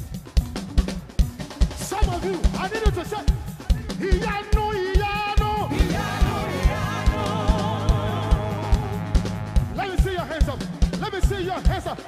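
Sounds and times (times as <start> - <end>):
singer holding long note: 5.7 - 9.9
sustained low bass note: 5.9 - 9.8.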